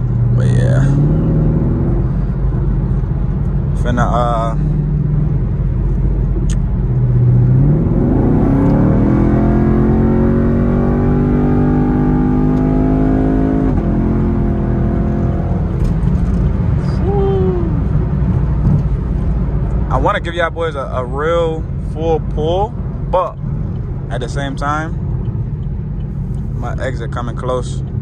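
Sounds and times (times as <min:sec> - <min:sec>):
car engine accelerating hard: 0:00.0 - 0:22.0
road and wind rumble: 0:00.0 - 0:28.0.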